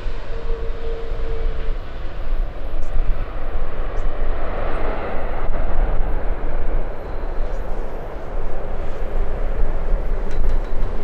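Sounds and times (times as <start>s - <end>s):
jet engines roaring: 0.0s - 11.0s.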